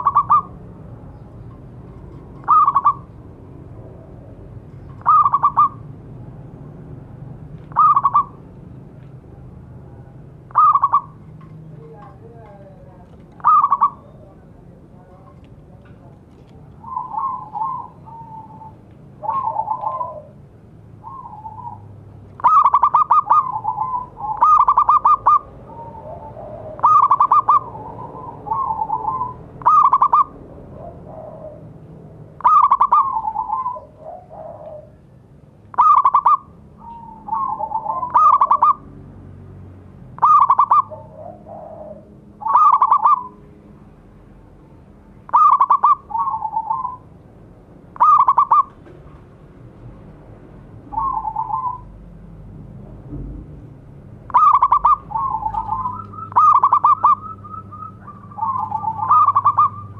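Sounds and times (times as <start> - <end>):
dove cooing: 0.0 - 0.7, 1.9 - 6.0, 7.7 - 8.4, 9.8 - 14.4, 16.7 - 31.8, 32.4 - 35.0, 35.7 - 38.9, 40.2 - 43.4, 45.3 - 47.1, 48.0 - 48.8, 50.9 - 52.0, 54.3 - 59.9.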